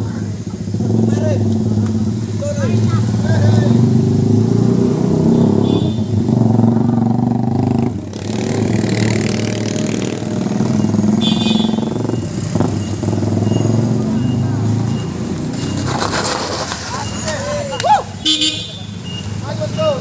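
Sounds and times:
traffic driving past: 0:00.0 - 0:20.0.

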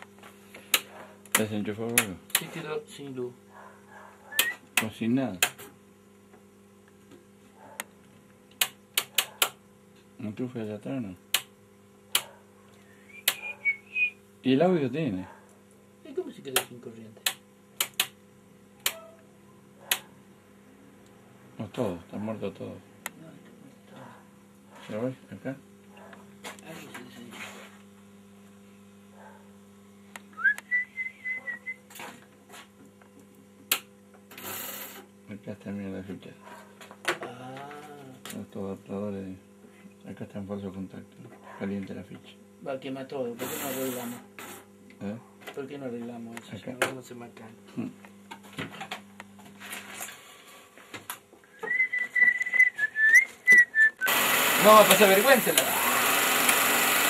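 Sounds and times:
person whistling: 0:04.3 - 0:04.6, 0:12.8 - 0:14.2, 0:30.4 - 0:31.8, 0:51.5 - 0:54.1.

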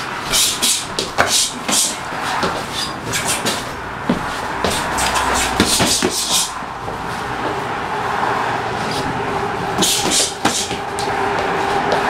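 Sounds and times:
rumbling background noise: 0:00.0 - 0:12.0
boxing gloves slapping: 0:00.3 - 0:06.5, 0:09.8 - 0:11.1.

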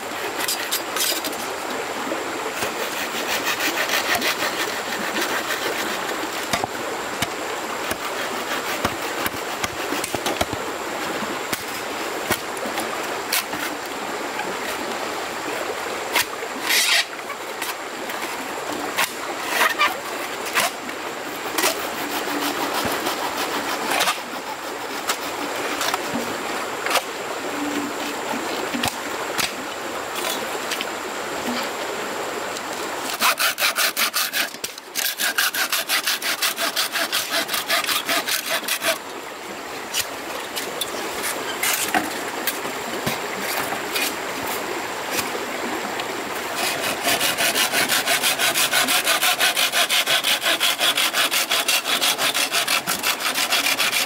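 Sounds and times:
hand saw cutting wood: 0:00.0 - 0:01.5, 0:02.5 - 0:10.6, 0:11.5 - 0:13.8, 0:16.1 - 0:27.1, 0:33.0 - 0:39.0, 0:39.9 - 0:42.1, 0:46.5 - 0:54.0.

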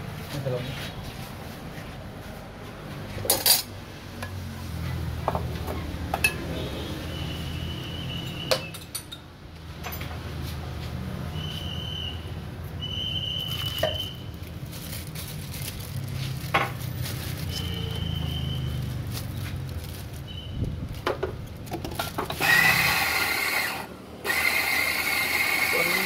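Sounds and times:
electric coffee grinder grinding: 0:22.3 - 0:26.0.

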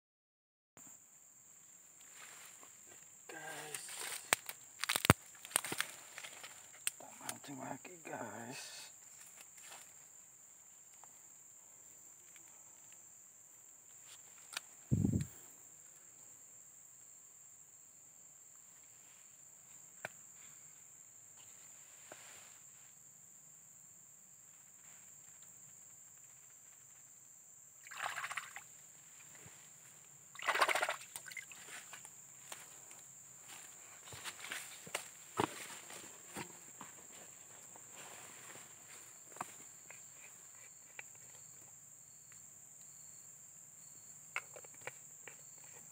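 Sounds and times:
high-pitched insect drone: 0:02.2 - 0:10.0, 0:25.7 - 0:29.3
hand sloshing in muddy water: 0:27.8 - 0:28.7, 0:30.4 - 0:31.6.

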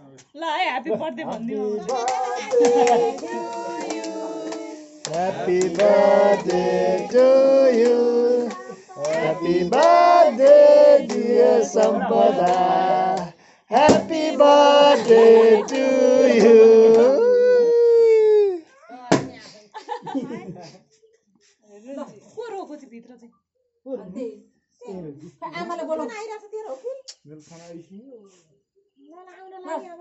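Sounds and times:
people singing a birthday song together: 0:00.9 - 0:17.5.

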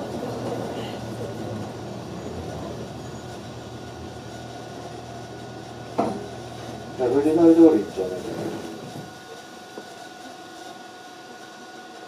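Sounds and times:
bus engine drone from inside: 0:00.0 - 0:12.0.

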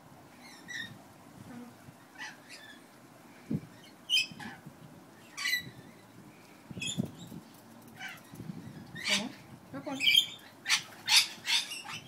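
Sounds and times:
parrots calling: 0:05.2 - 0:06.0, 0:10.0 - 0:12.0.

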